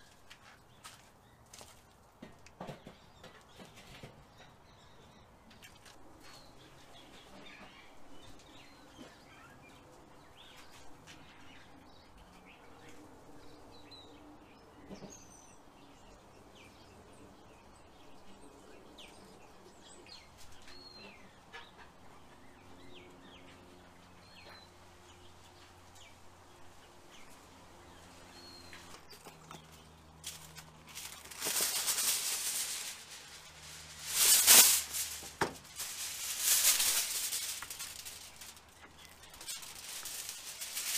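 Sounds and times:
aluminium foil crinkling: 0:28.9 - 0:40.9.

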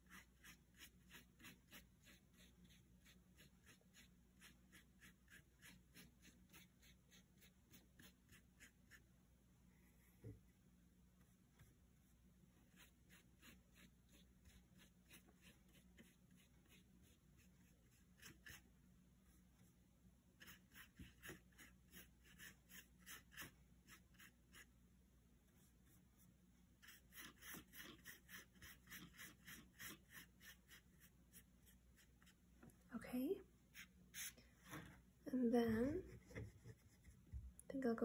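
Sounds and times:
paintbrush scrubbing on paper: 0:00.0 - 0:09.1, 0:11.2 - 0:19.7, 0:20.4 - 0:24.8, 0:25.5 - 0:32.5, 0:33.6 - 0:34.8.

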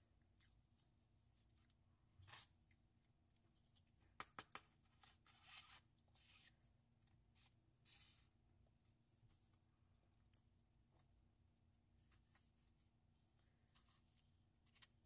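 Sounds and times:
plastic fork scraping foam container: 0:05.0 - 0:06.6.

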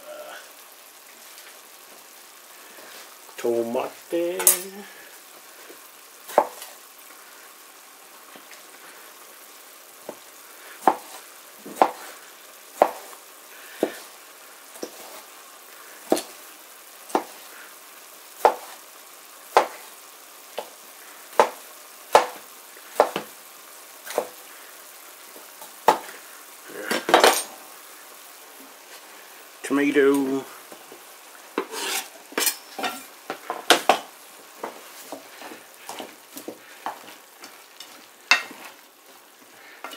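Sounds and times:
onions sizzling in pot: 0:00.0 - 0:39.9
knife chopping on cutting board: 0:10.8 - 0:11.2, 0:11.8 - 0:12.0, 0:12.8 - 0:13.1, 0:17.1 - 0:17.4, 0:18.4 - 0:18.8, 0:19.6 - 0:19.8, 0:21.4 - 0:22.4, 0:23.0 - 0:23.3.

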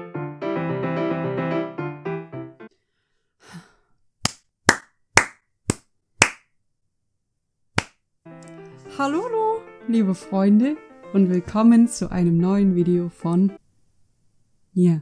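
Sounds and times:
music: 0:00.0 - 0:02.7, 0:08.2 - 0:13.6
person clapping hands: 0:04.2 - 0:06.5, 0:07.8 - 0:08.6.

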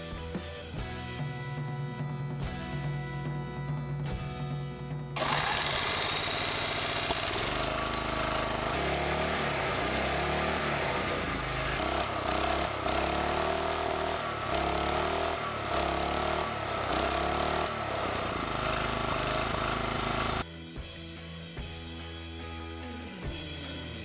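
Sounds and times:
small engine running: 0:05.2 - 0:20.5.

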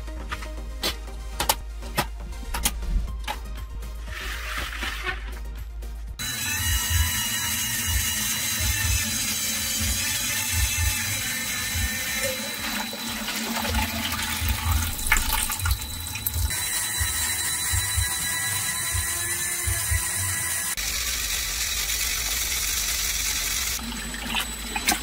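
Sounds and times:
water pouring and splashing: 0:12.3 - 0:16.5, 0:23.8 - 0:25.0.

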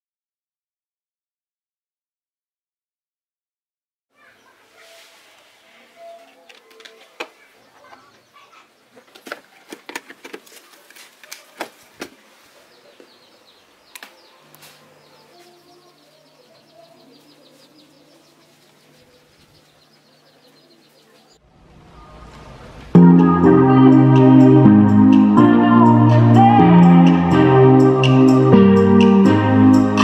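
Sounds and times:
birds chirping faintly: 0:04.1 - 0:22.8.

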